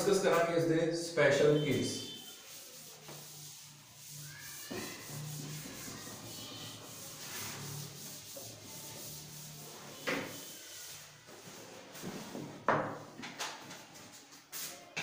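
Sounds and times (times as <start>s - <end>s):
eraser rubbing on blackboard: 2.0s - 12.3s.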